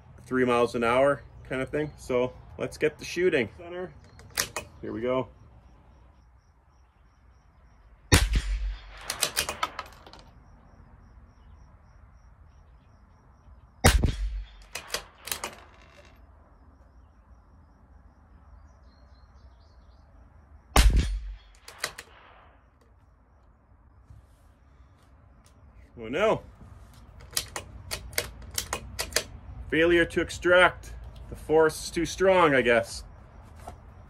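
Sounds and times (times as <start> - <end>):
rifle bolt metallic clicks: 4.0 - 4.8, 8.2 - 10.2, 13.9 - 16.1, 21.0 - 22.9, 27.2 - 29.3
rifle shots: 8.1 - 10.0, 13.8 - 15.4, 20.8 - 22.7.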